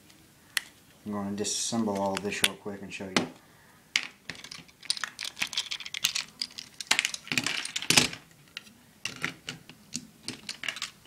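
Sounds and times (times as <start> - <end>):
plastic bricks clicking and clattering: 4.0 - 11.0.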